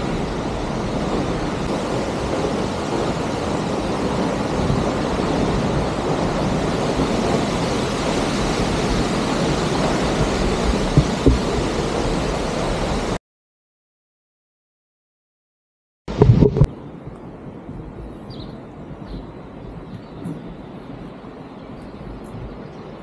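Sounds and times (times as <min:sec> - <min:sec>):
waterfall rushing: 0:00.0 - 0:13.2
wind buffeting microphone: 0:00.0 - 0:13.2, 0:16.1 - 0:23.0.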